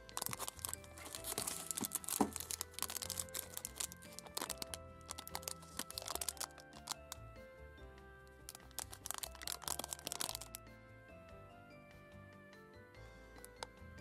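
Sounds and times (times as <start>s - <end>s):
plastic wrappers crinkling: 0.0s - 7.2s, 8.5s - 10.6s
background music: 0.0s - 14.0s.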